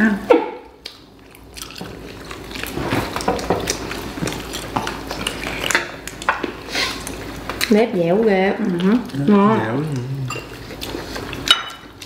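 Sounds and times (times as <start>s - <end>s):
people chewing and biting: 0.7s - 7.8s, 8.5s - 12.0s.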